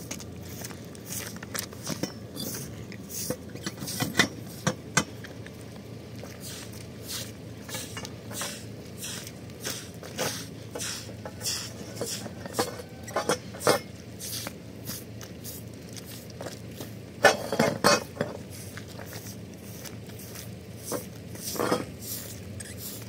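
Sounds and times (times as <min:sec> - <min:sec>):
broom sweeping concrete: 0:00.0 - 0:04.6, 0:06.3 - 0:13.0, 0:14.2 - 0:17.0, 0:18.4 - 0:23.0
metal pipes clinking on concrete: 0:01.8 - 0:02.7, 0:11.2 - 0:13.9, 0:17.2 - 0:18.4, 0:20.9 - 0:21.9.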